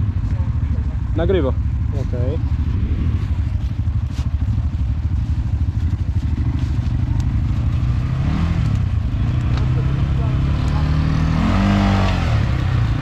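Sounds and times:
quad engines idling: 0.0 - 13.0.

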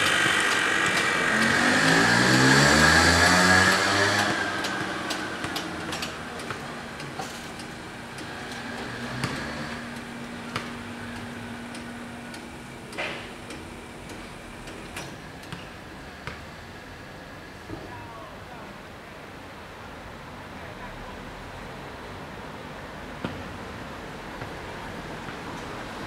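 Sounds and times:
passing car engine: 0.0 - 12.3.

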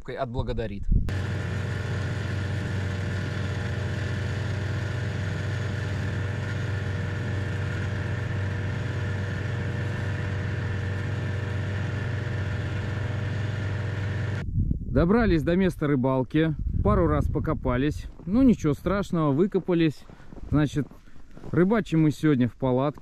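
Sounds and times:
snowmobile engine droning: 1.1 - 14.4.

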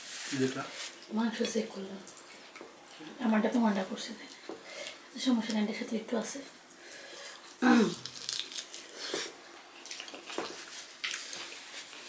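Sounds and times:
wet chewing: 1.8 - 3.2, 6.7 - 12.0.

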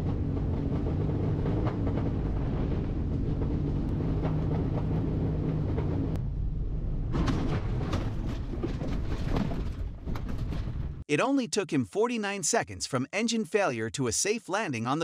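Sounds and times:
wind rushing in cockpit: 0.0 - 11.0
aircraft wheels rattling on rough ground: 7.2 - 11.0.

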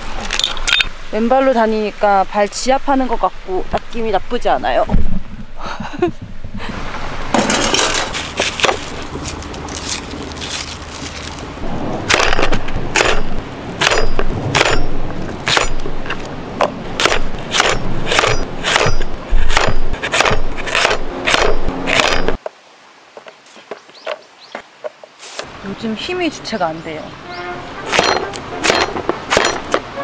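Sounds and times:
crackly noise: 3.7 - 25.6
hatchet chopping on wooden board: 13.8 - 14.9, 15.5 - 15.8, 17.0 - 22.4.

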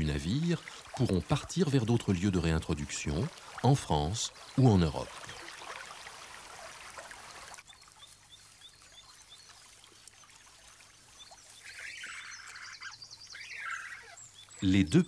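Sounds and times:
water trickling: 0.0 - 15.0
otter cubs squealing: 11.6 - 14.8.

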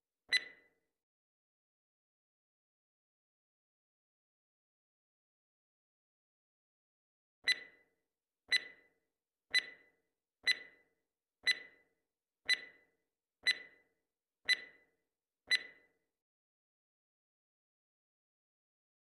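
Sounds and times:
clock ticks with ringing tail: 13.4 - 13.8.

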